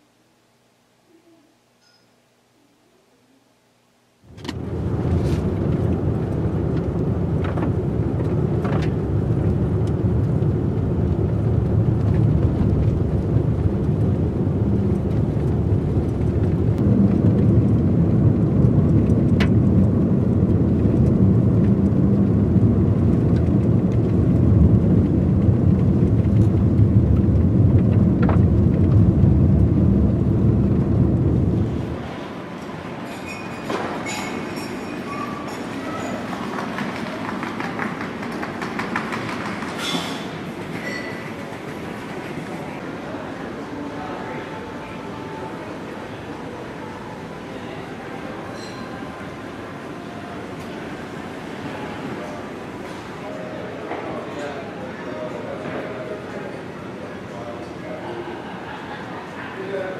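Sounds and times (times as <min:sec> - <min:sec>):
car driving rumble from inside: 0:04.4 - 0:32.0.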